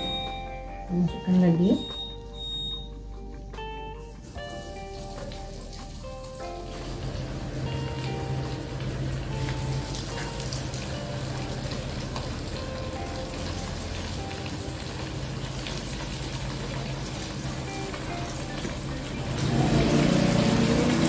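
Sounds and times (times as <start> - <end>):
soft background music: 0.0 - 21.0
food sizzling in hot oil: 4.2 - 21.0.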